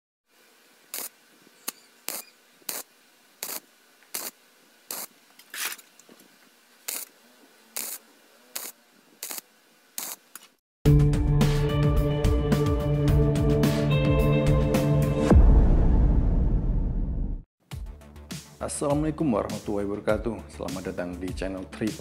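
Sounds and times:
welder arc crackling bursts: 0:00.8 - 0:05.8, 0:06.8 - 0:07.2, 0:07.8 - 0:10.6
music: 0:10.9 - 0:16.8, 0:17.6 - 0:22.0.

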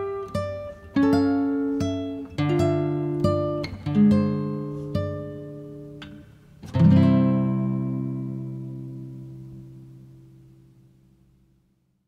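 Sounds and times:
acoustic guitar plucking: 0:00.0 - 0:11.2.

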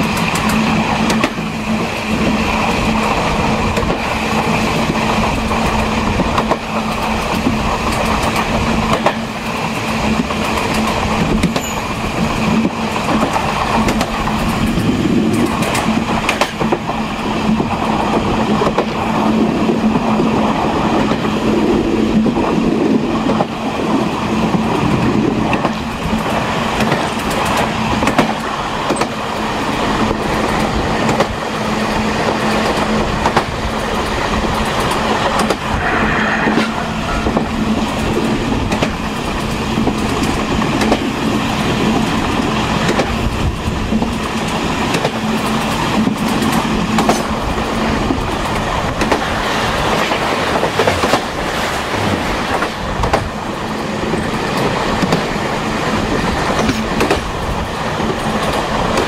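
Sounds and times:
train wheels rumbling on rails: 0:00.0 - 0:59.0
high wheel squeal: 0:35.5 - 0:38.6
low hum: 0:35.6 - 0:38.7.

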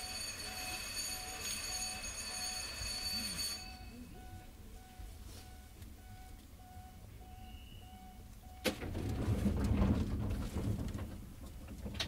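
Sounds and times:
repeating door warning beep: 0:00.0 - 0:08.8.

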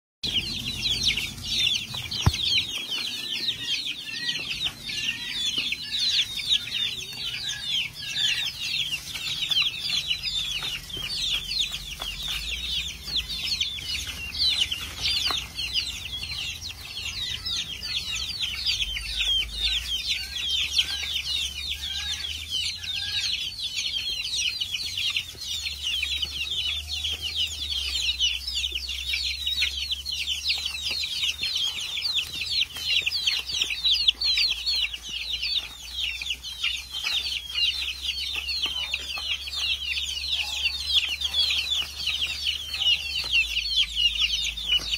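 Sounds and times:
chicks peeping: 0:00.2 - 0:44.9.

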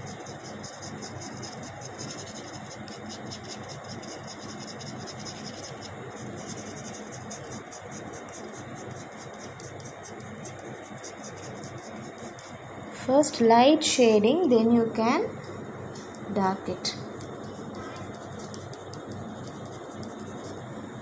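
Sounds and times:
pencil shading on paper: 0:00.0 - 0:12.6, 0:17.2 - 0:20.7.

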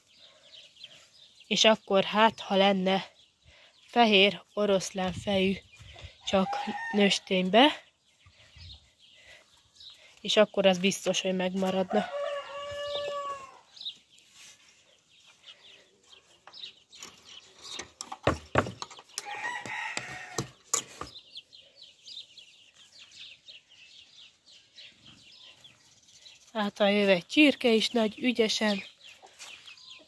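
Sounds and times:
chicks peeping: 0:00.0 - 0:01.8, 0:02.7 - 0:30.0
rooster crowing: 0:11.9 - 0:13.6, 0:19.2 - 0:20.6
knocks and rustling: 0:17.0 - 0:19.2.

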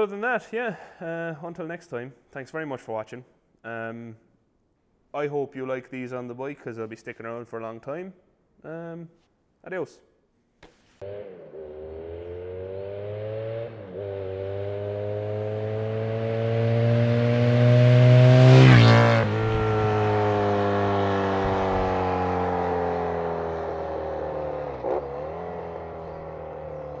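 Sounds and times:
motorcycle engine passing by: 0:11.0 - 0:27.0.

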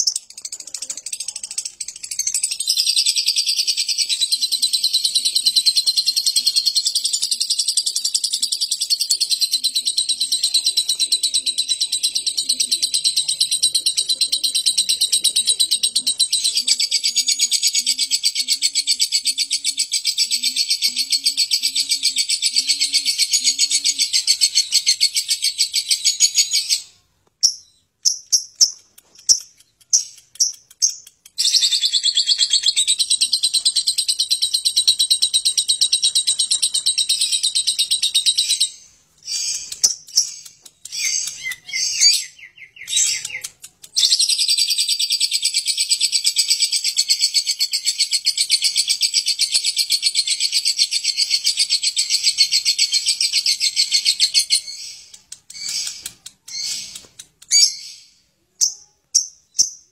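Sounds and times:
lovebird chattering trill: 0:13.0 - 0:59.9.

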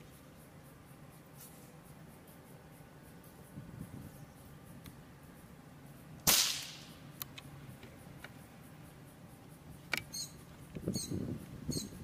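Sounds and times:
gunshot with echo: 0:06.2 - 0:06.9.

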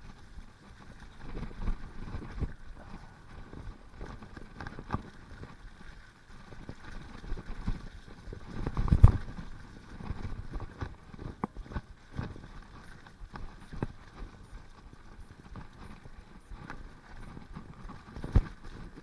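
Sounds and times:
bike rattling over dirt trail: 0:00.0 - 0:19.0.

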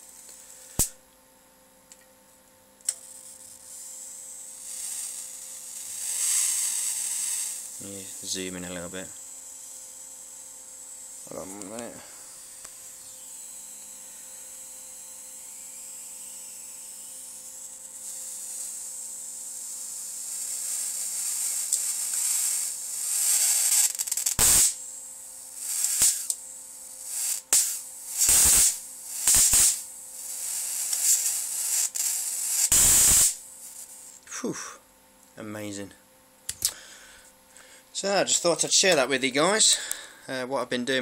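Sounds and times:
loud sharp spark bursts: 0:00.0 - 0:01.0, 0:02.9 - 0:13.0, 0:15.6 - 0:34.2
high-voltage hiss: 0:02.9 - 0:34.8, 0:36.5 - 0:40.4.

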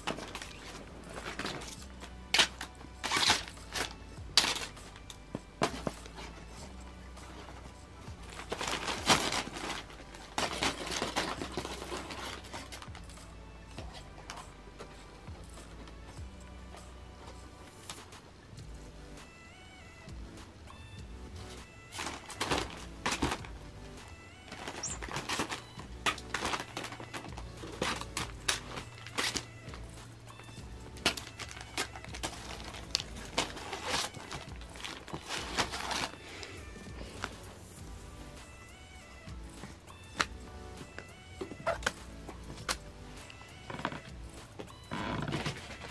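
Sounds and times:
paper crinkling and rustling: 0:00.0 - 0:06.4, 0:08.3 - 0:13.1, 0:21.4 - 0:30.0, 0:30.6 - 0:37.7, 0:43.6 - 0:45.9.

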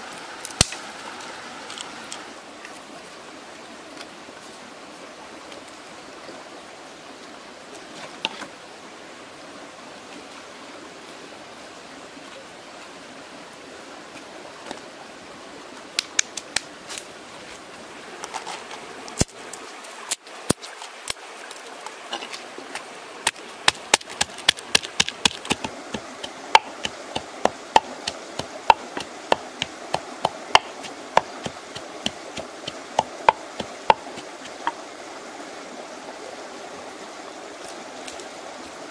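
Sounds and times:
steady background hiss: 0:00.0 - 0:38.9
wooden pestle pounding in mortar: 0:26.6 - 0:31.8, 0:32.4 - 0:34.2.

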